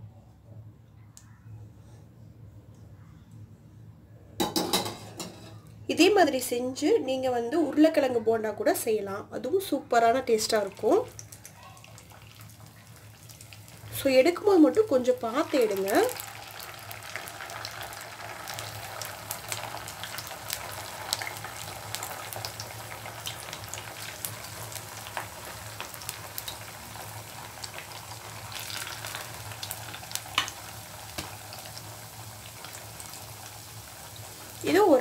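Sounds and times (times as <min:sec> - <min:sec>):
food sizzling in hot oil: 0:10.3 - 0:35.0.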